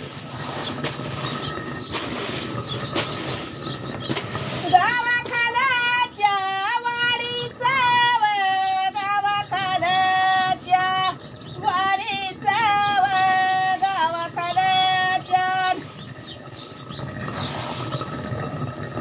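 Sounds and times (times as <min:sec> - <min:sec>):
woman singing unaccompanied: 0:04.6 - 0:16.0.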